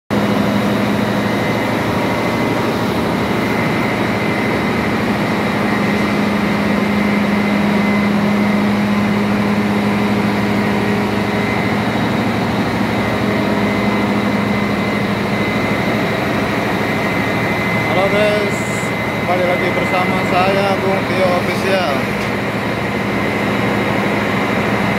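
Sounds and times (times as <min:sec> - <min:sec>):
engine room machinery humming: 0:00.1 - 0:24.9.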